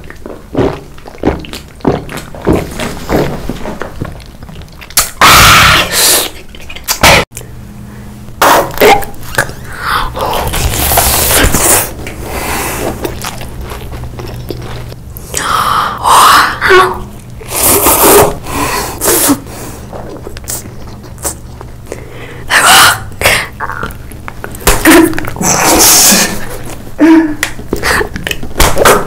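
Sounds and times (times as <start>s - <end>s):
biting and chewing corn: 0.0s - 5.3s, 10.3s - 15.0s
steady low hum: 0.0s - 29.0s.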